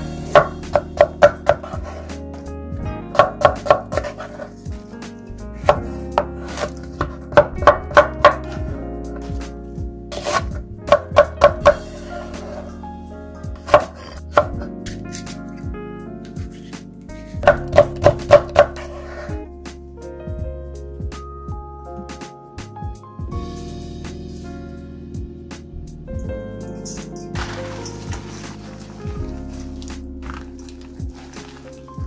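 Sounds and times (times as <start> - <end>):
soft background music: 0.0 - 32.0
knife slicing on cutting board: 5.8 - 6.8, 10.1 - 10.6.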